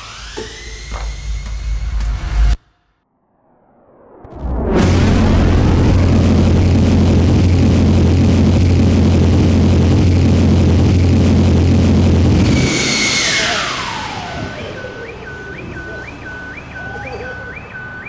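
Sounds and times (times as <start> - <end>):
jet engine whine spooling down: 3.2 - 16.0
jet engine roaring: 3.3 - 15.6.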